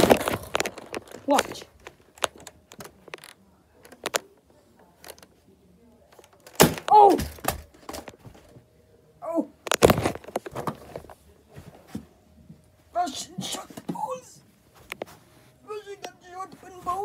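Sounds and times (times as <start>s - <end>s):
handling clicks and rustles: 0.0s - 5.4s, 9.6s - 14.0s.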